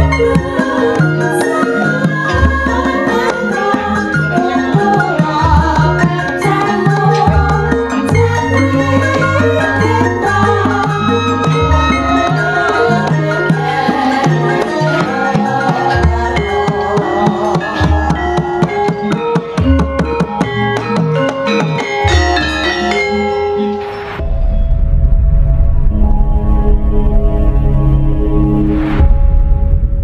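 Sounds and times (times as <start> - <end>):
music with drums and bass: 0.0 - 23.1
low rumbling drone: 24.1 - 30.0.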